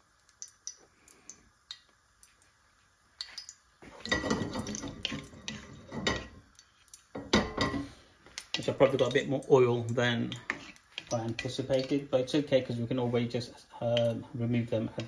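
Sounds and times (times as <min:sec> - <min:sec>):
seeds sizzling in hot oil: 0:00.0 - 0:15.0
ladle scraping and knocking pan: 0:03.9 - 0:06.4, 0:10.3 - 0:11.9.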